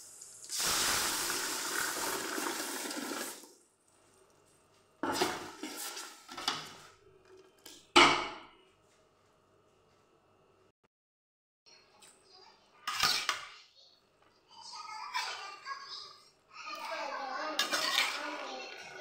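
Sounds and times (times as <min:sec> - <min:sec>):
juice sizzling in hot pot: 0:00.0 - 0:03.6
metal spoon scraping pot: 0:17.6 - 0:19.0.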